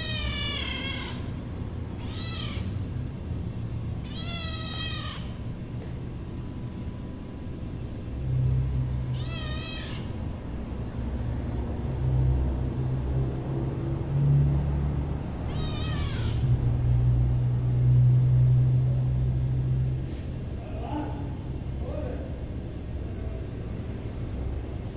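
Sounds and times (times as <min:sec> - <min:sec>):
cat meowing: 0:00.0 - 0:02.9, 0:04.0 - 0:05.4, 0:09.1 - 0:10.2, 0:15.4 - 0:16.5
low steady hum: 0:00.0 - 0:24.9.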